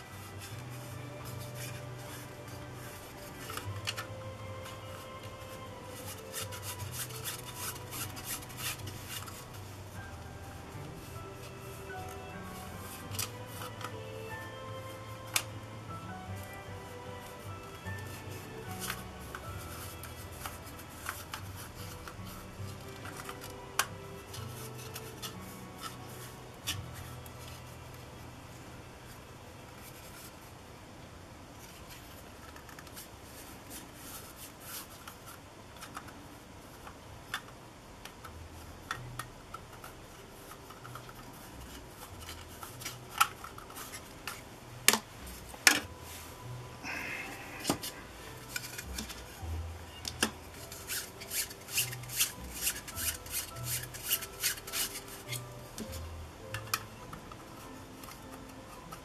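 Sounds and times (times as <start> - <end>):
cloth rubbing plastic: 0.0 - 28.0, 38.6 - 56.3.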